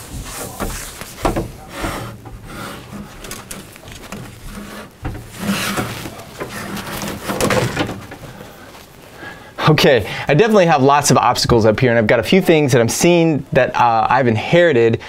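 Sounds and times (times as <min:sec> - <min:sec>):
cable scraping over metal grid: 0:00.0 - 0:08.4.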